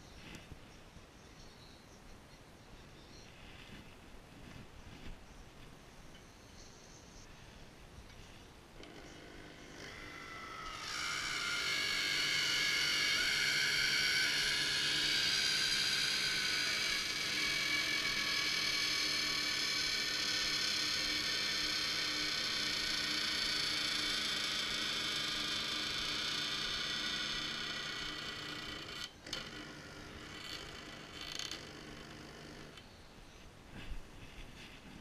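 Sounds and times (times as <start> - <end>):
geared motor whine: 8.8 - 32.9.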